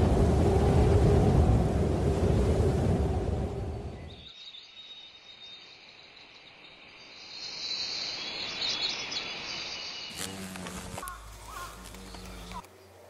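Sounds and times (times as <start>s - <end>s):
bird chirps: 4.0s - 13.0s
insects chirring: 4.0s - 13.0s
low hum with crackle: 10.1s - 12.8s.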